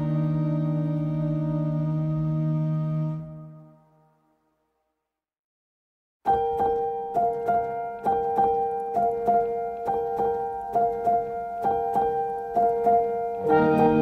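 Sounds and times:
gentle repeating melody: 6.3 - 14.0.

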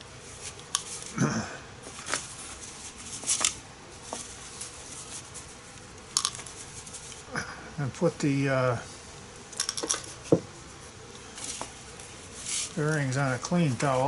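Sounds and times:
paper towel rubbing foil pan: 1.9 - 5.8, 11.3 - 14.0
ball bearings rattling in plastic bottle: 6.1 - 7.2, 9.6 - 10.2.

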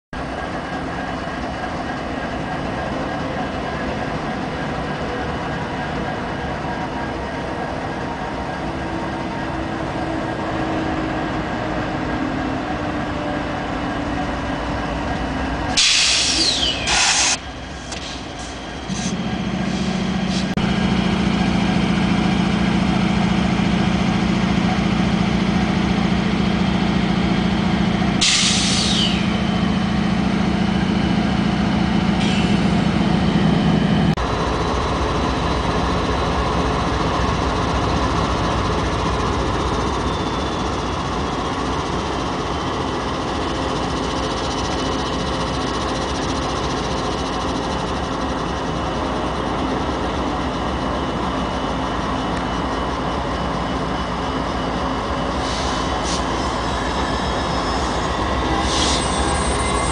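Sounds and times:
diesel locomotives passing: 0.2 - 59.9
loud hisses: 15.8 - 17.4.

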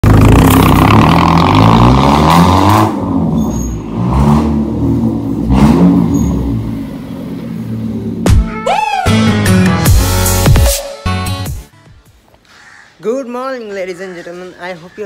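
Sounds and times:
car engine revving loud exhaust: 0.0 - 8.3.

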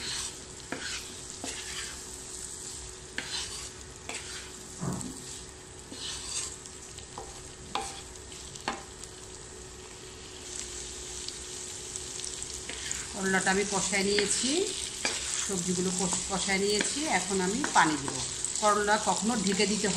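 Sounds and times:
wooden spatula scraping a pan: 0.0 - 8.8, 12.6 - 18.2
vegetables sizzling in hot oil: 0.0 - 19.9.

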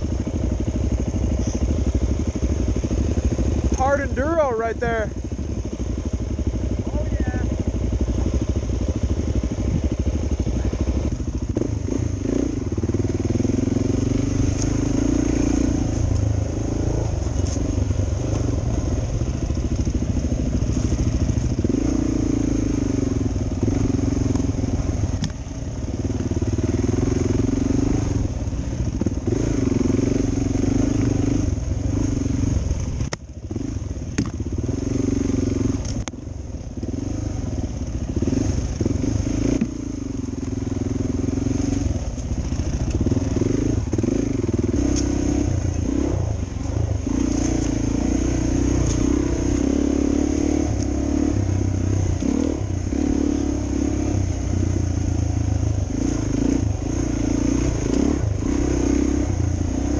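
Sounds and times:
motorcycle engine revving: 0.0 - 59.9
sharp clicks: 35.8 - 36.2.

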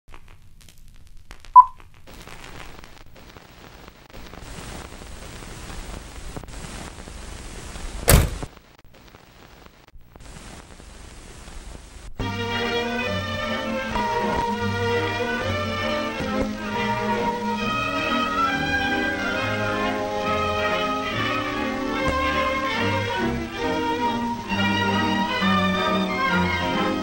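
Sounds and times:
crackling film hiss: 0.1 - 27.0
loud thump: 8.1 - 8.5
music: 12.2 - 27.0.

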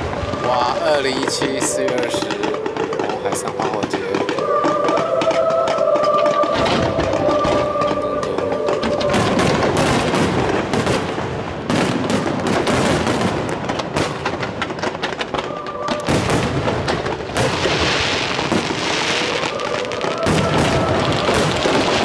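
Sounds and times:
fireworks bangs and popping: 0.0 - 22.0
fireworks crackling: 0.0 - 22.0.

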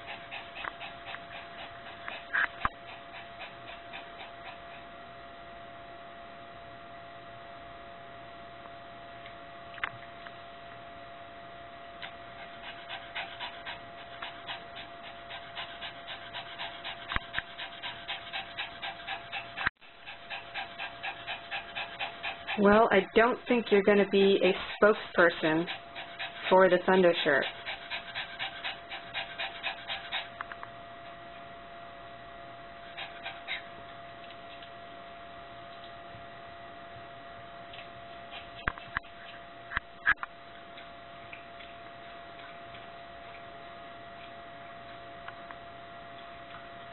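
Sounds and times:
small dog panting rapidly: 0.0 - 5.2, 12.0 - 30.6, 32.8 - 34.8, 37.6 - 39.8
steady electrical hum: 0.0 - 46.9.

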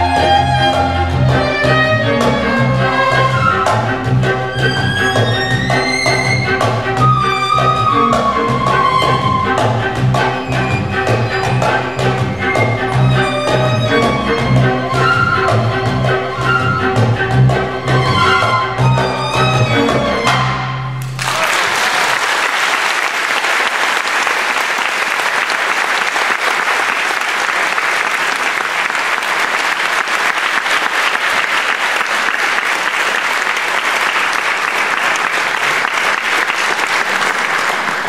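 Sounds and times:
folk ensemble playing: 0.0 - 21.2
audience applauding: 21.0 - 38.0.

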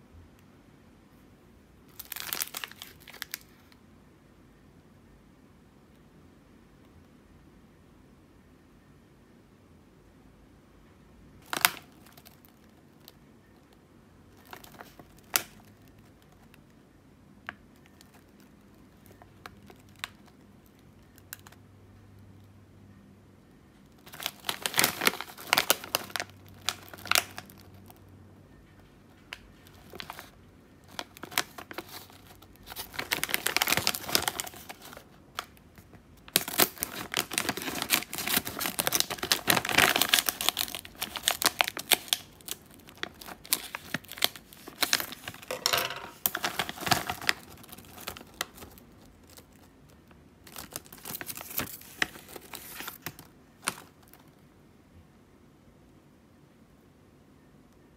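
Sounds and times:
plastic snack bag crinkling: 1.9 - 3.8, 11.4 - 13.2, 14.3 - 16.7, 17.8 - 21.6, 23.9 - 28.0, 29.2 - 54.4.

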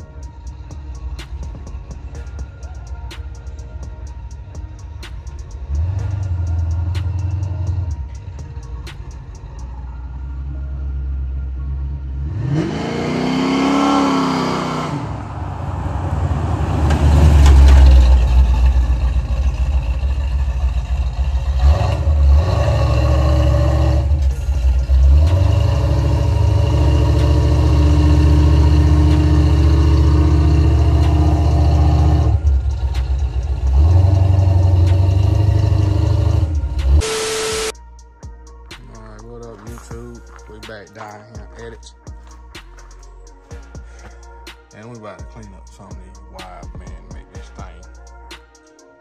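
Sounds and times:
car driving by with exhaust rumble: 0.0 - 37.8
car engine revving: 5.5 - 8.2, 11.6 - 37.7.

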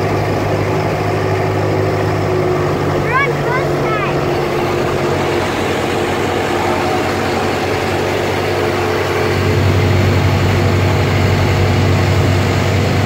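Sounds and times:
boat engine humming: 0.0 - 13.0
water wake rushing: 0.0 - 13.0.

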